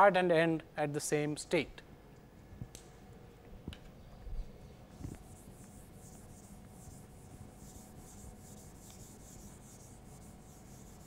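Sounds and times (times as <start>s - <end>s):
eraser rubbing on whiteboard: 4.9s - 11.0s.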